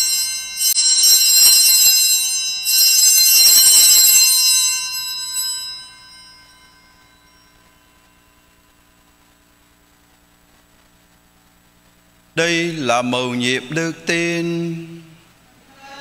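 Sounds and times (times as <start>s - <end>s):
small bells jangling: 0.0s - 9.0s.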